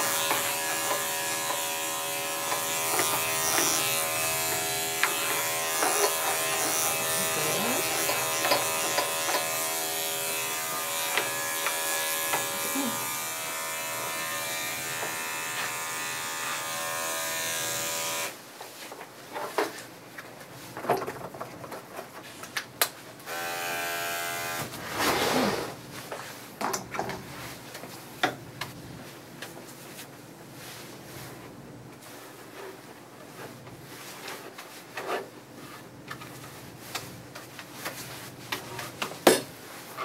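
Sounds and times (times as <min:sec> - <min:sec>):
electric clipper buzzing: 0:00.0 - 0:18.4, 0:23.2 - 0:24.7.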